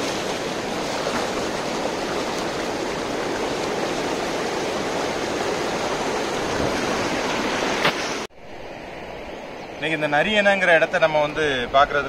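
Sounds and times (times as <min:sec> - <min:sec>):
river water rushing over dam: 0:00.0 - 0:08.3.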